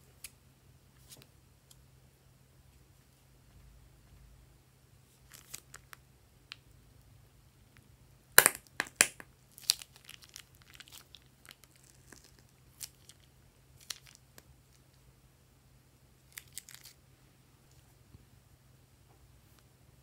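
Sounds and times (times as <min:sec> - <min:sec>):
plastic piping bag crinkling: 0:08.5 - 0:14.8, 0:16.3 - 0:17.0.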